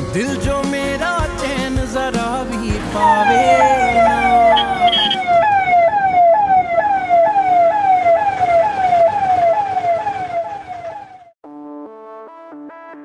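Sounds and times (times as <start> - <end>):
rapid yelping siren: 3.0 - 11.4.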